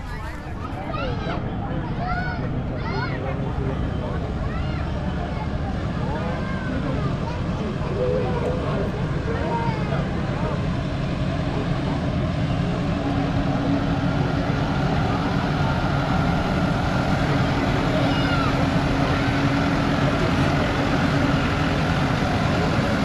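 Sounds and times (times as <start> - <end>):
tractor engine running: 3.5 - 23.0.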